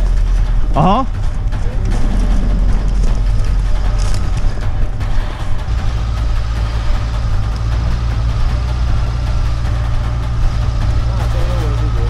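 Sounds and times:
car engine low drone: 0.0 - 12.0.

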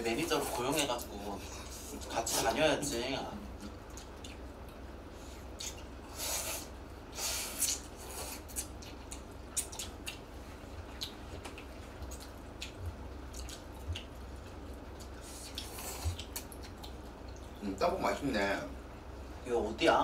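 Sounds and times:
wet chewing smacks: 3.6 - 4.8, 7.6 - 17.6.

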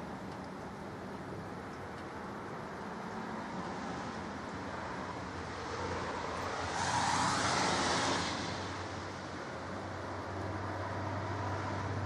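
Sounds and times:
tyre hiss on wet road: 5.6 - 10.6.

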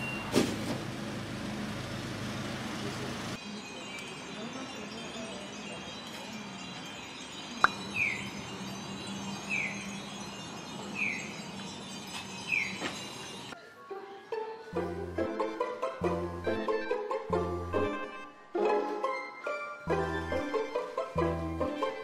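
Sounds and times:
street noise: 0.0 - 16.4.

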